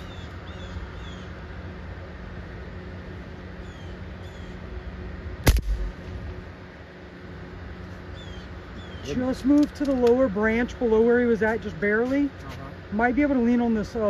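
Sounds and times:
bird chirps: 0:00.0 - 0:01.4, 0:03.6 - 0:04.6, 0:08.1 - 0:09.2
low hum: 0:00.0 - 0:14.0
air rifle shot: 0:05.4 - 0:06.0.

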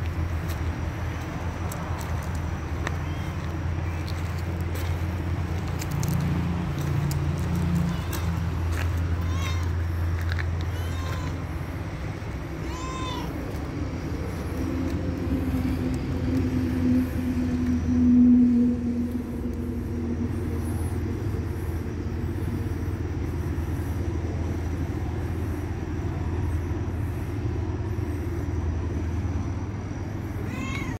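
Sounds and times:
steady low hum: 0:00.0 - 0:30.9
droning tone: 0:02.5 - 0:30.6
cat meowing: 0:09.2 - 0:09.8, 0:10.7 - 0:11.4, 0:12.6 - 0:13.4, 0:30.4 - 0:30.9.

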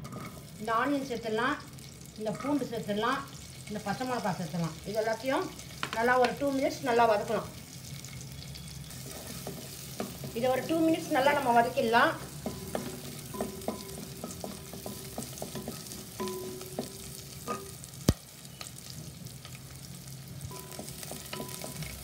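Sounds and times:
wooden spatula scraping a pan: 0:00.0 - 0:00.5, 0:08.9 - 0:11.5
onions sizzling in hot oil: 0:00.0 - 0:22.0.

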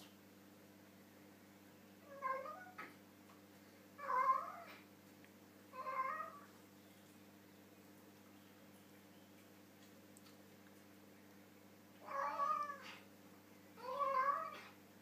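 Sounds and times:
cat meowing: 0:02.1 - 0:02.9, 0:04.0 - 0:04.8, 0:05.8 - 0:06.5, 0:12.0 - 0:13.0, 0:13.8 - 0:14.7.

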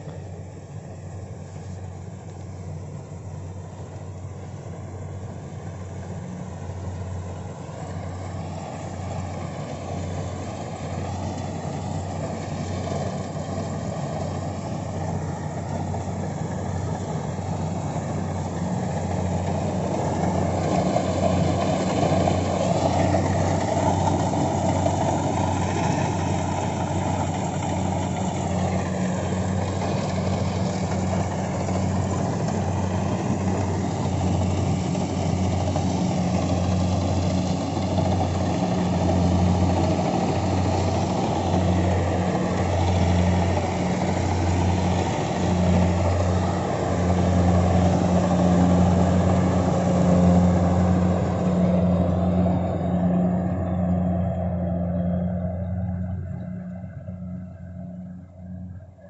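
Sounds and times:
combine harvester engine drone: 0:00.0 - 0:59.0.

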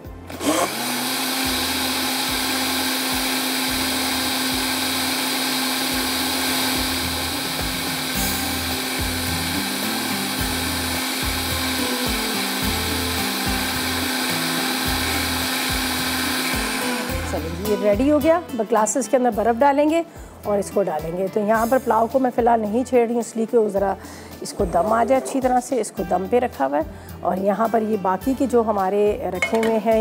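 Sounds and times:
electric blender running: 0:00.0 - 0:18.4.

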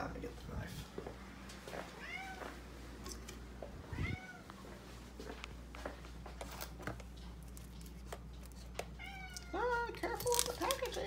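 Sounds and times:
cat meowing: 0:02.0 - 0:02.5, 0:03.9 - 0:04.5, 0:08.9 - 0:09.8.

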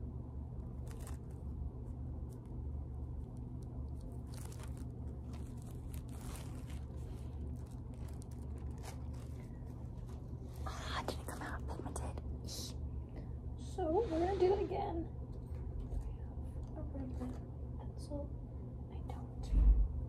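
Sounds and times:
steady low hum: 0:00.0 - 0:20.0
plastic wrap crinkling: 0:00.6 - 0:11.8.

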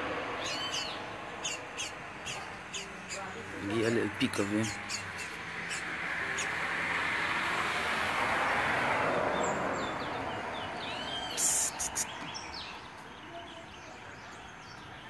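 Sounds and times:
bird chirps: 0:00.4 - 0:03.7, 0:09.4 - 0:15.0.

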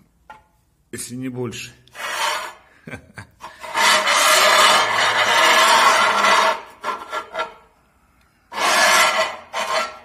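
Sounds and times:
tile scraping across tile: 0:01.9 - 0:02.6, 0:03.4 - 0:07.7, 0:08.5 - 0:10.0.

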